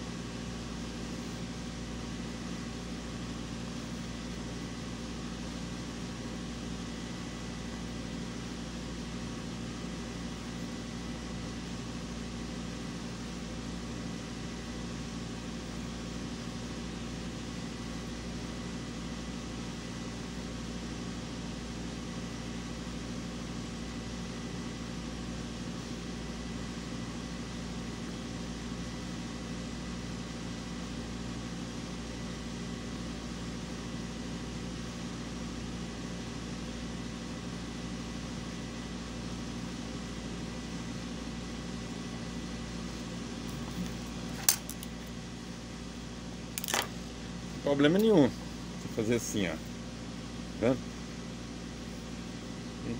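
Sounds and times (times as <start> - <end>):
machine hum: 0.0 - 20.0, 39.4 - 52.9.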